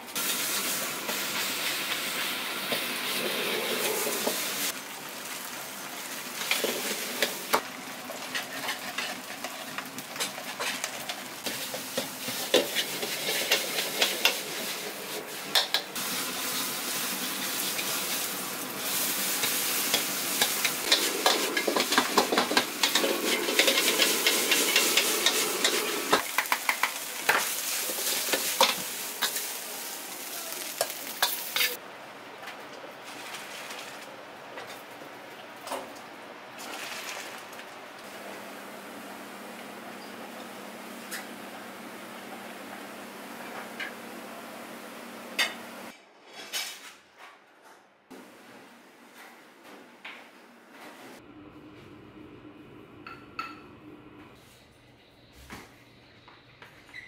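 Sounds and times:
food sizzling in a wok: 0:00.0 - 0:31.8.

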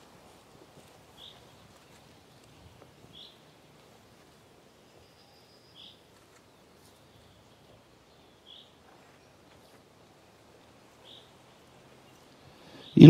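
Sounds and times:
bird calling: 0:01.1 - 0:03.5, 0:10.8 - 0:13.0.

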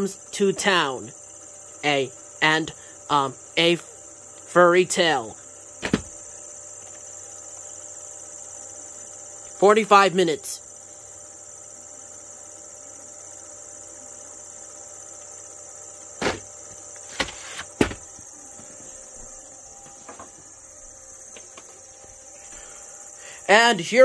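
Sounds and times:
high-pitched hiss: 0:00.0 - 0:10.7, 0:16.0 - 0:24.0
tape case knocks: 0:05.8 - 0:06.2, 0:17.1 - 0:18.2.

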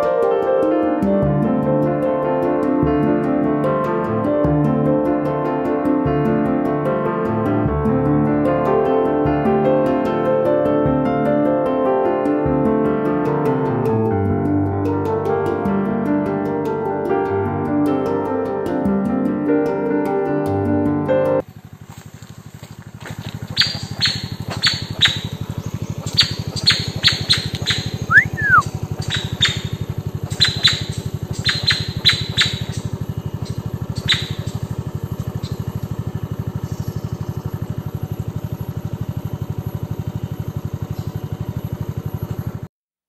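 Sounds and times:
motorcycle engine idling: 0:00.2 - 0:42.7
bird chip notes: 0:23.5 - 0:38.8
bird whistle rising and falling: 0:23.6 - 0:25.4, 0:26.0 - 0:34.6.

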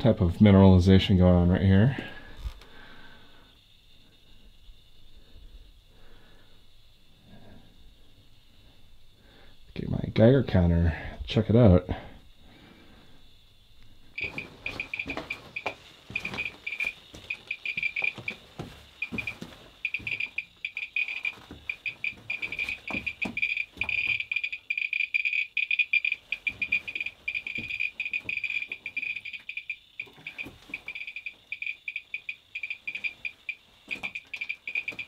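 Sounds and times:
geiger counter clicking: 0:14.2 - 0:35.0.

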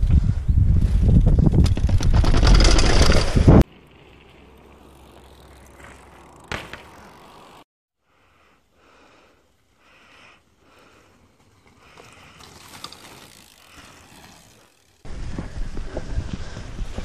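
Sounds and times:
wind rumble on microphone: 0:00.0 - 0:03.6, 0:15.1 - 0:17.0
bike rattling down concrete steps: 0:01.3 - 0:03.6.

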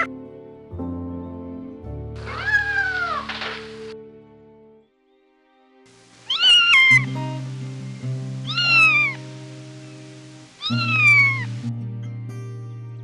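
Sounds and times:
kitten meowing high-pitched: 0:02.2 - 0:03.3, 0:06.3 - 0:07.1, 0:08.4 - 0:09.2, 0:10.6 - 0:11.5.

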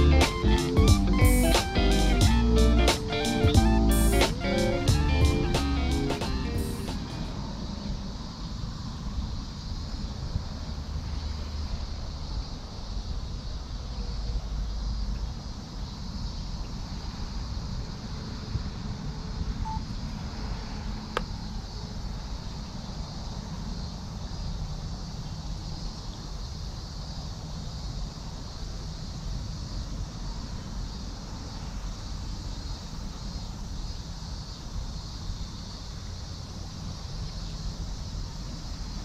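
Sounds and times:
faint high hiss: 0:00.0 - 0:10.4.

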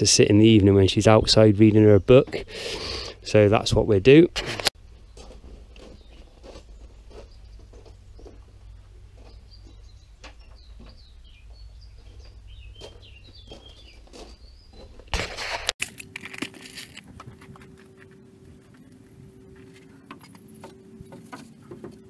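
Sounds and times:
birds chirping: 0:04.8 - 0:15.2, 0:17.6 - 0:22.0.

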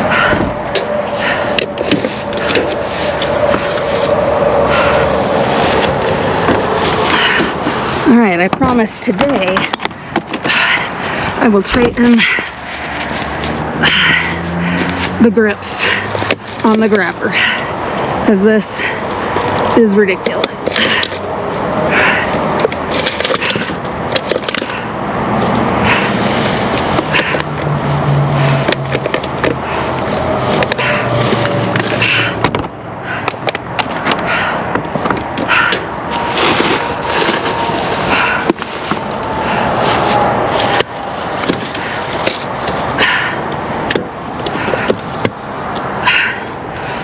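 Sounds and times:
low rumble: 0:00.0 - 0:23.0
metal grabber scraping: 0:00.0 - 0:45.4
plastic bags rustling: 0:00.2 - 0:32.5, 0:33.9 - 0:45.5.

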